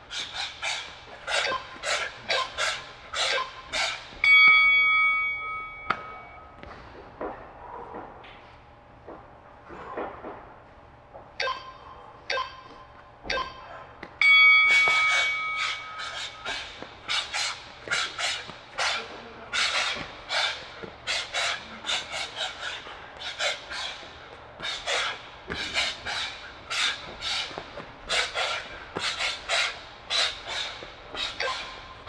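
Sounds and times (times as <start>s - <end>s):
timer beeps: 11.4s - 12.7s
sharp exhales: 14.9s - 31.8s.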